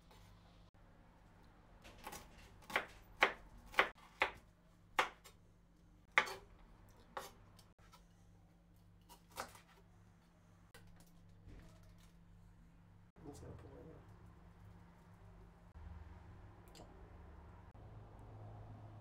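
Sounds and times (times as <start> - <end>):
knife chopping on wooden board: 2.0 - 4.4, 5.0 - 5.4, 6.1 - 6.5.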